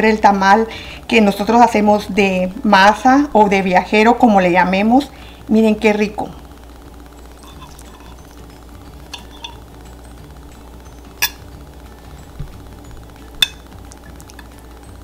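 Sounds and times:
cutlery clinking on a plate: 0:09.2 - 0:09.6.

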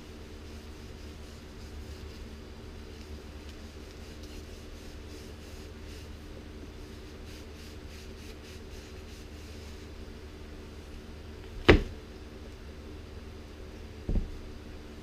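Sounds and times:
cloth wiping wood: 0:00.0 - 0:10.1
steady low hum: 0:00.0 - 0:15.0.

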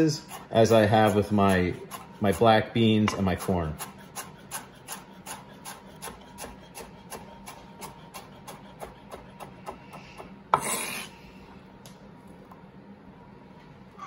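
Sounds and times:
knife chopping on cutting board: 0:00.2 - 0:11.0.

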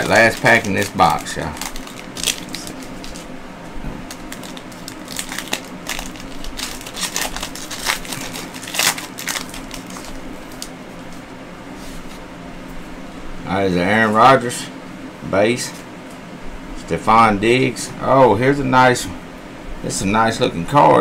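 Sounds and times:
foil wrapper tearing and crinkling: 0:00.0 - 0:03.3, 0:04.0 - 0:10.8.

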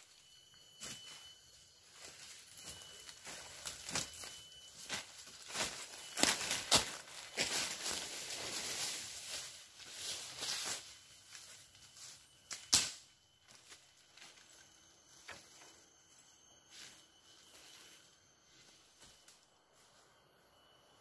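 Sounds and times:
footsteps in dry leaves: 0:01.8 - 0:12.2.

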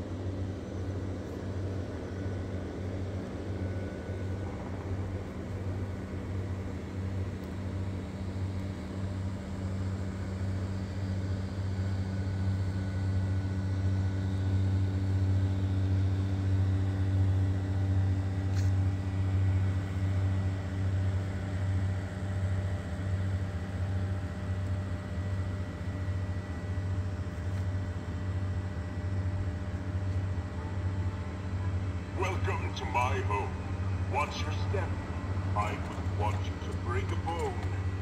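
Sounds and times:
blower fans humming: 0:29.4 - 0:38.0.

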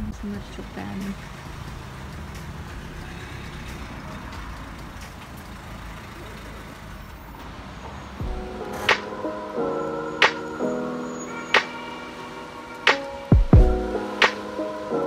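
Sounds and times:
background music: 0:07.9 - 0:15.0.

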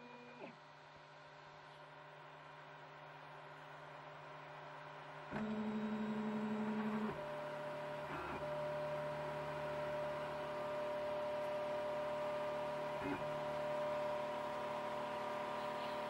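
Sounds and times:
stepper motors whining: 0:07.9 - 0:16.0.

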